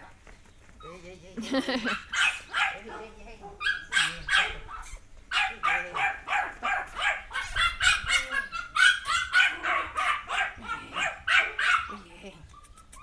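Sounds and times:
small dog barking high-pitched: 1.9s - 3.0s, 3.6s - 12.0s.

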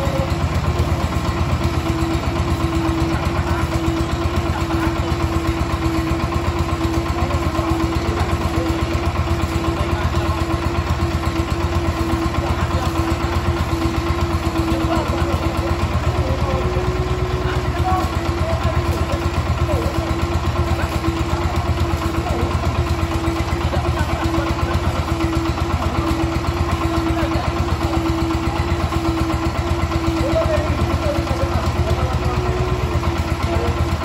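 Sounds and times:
engine idling: 0.0s - 34.0s.

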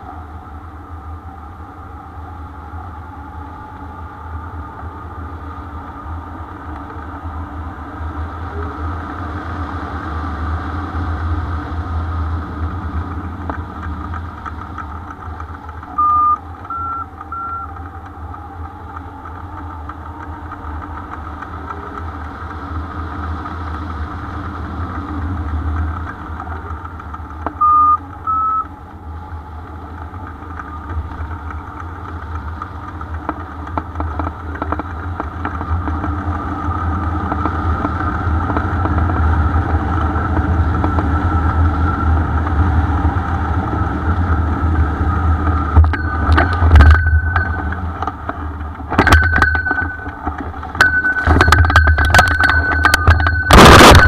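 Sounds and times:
wind rushing over microphone: 0.0s - 16.7s, 28.8s - 54.0s
electronic beeps rising in pitch: 15.9s - 17.7s, 27.6s - 28.7s.

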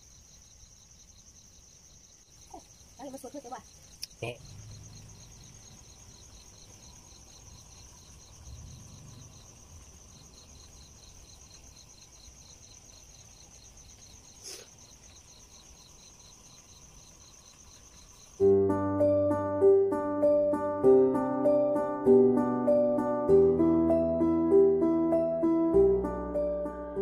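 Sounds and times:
crickets trilling: 0.0s - 20.8s
lower pulsing insect chirp: 0.0s - 27.0s
plucked music: 18.4s - 27.0s.

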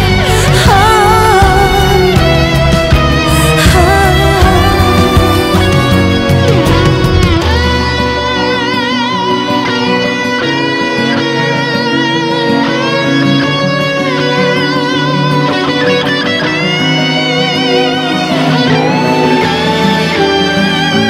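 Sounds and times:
stepping bass line: 0.0s - 8.4s
electric guitar held notes: 0.0s - 21.0s.

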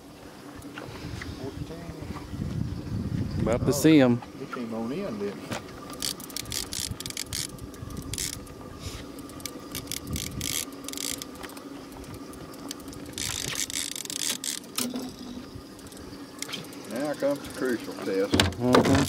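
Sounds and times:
steady low hum: 0.0s - 19.0s
fishing reel clicking: 5.9s - 18.2s.

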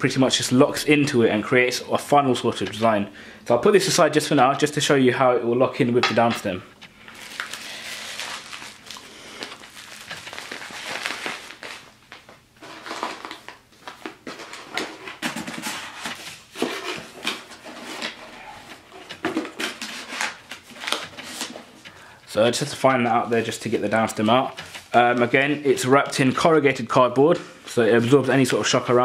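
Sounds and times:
packaging rustling and crinkling: 6.1s - 26.8s
small knocks and scrapes: 14.3s - 22.0s, 23.6s - 25.4s.

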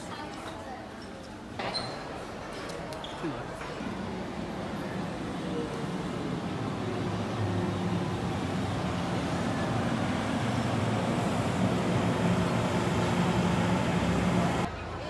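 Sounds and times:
electric train rumbling: 3.5s - 14.7s.

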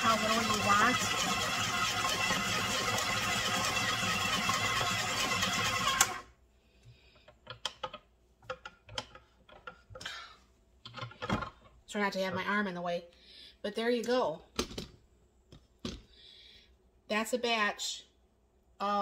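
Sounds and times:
stand mixer running: 0.0s - 6.3s.

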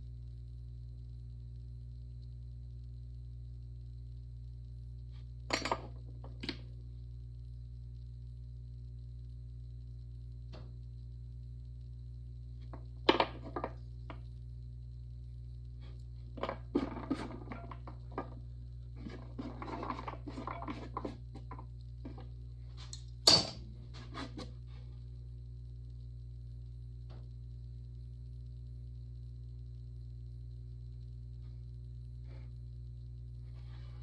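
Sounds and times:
steady low hum: 0.0s - 34.0s
cup set down on wood: 13.1s - 13.8s, 16.4s - 18.4s
light scraping and rustling: 23.9s - 24.9s.

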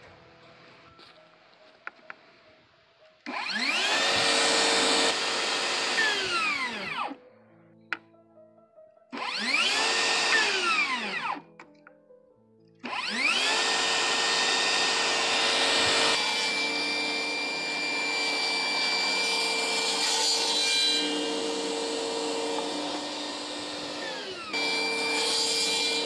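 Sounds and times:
saw blade cutting wood sheet: 3.3s - 7.0s, 9.3s - 11.2s, 12.9s - 26.0s
table saw motor spinning: 3.3s - 7.2s, 9.2s - 11.4s, 12.9s - 26.0s.

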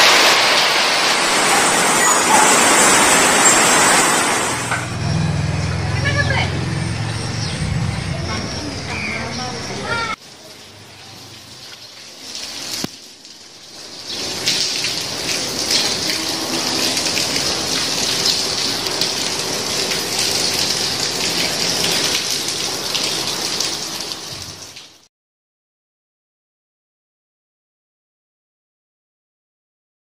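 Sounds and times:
rain on water and wet paving: 0.0s - 5.1s, 9.3s - 25.1s.

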